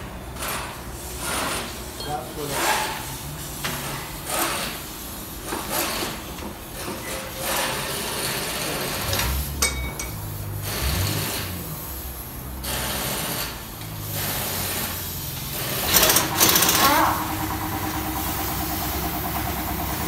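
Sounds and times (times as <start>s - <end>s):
pneumatic impact wrench: 0.0s - 20.0s.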